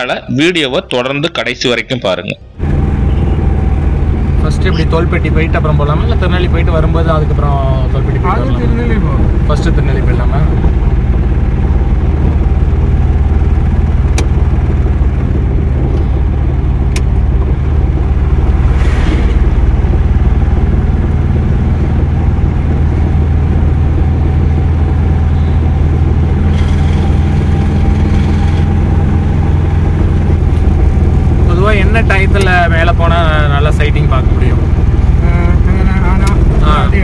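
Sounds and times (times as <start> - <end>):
car engine and road noise: 0.0 - 37.0
brief rush of noise: 18.6 - 19.9.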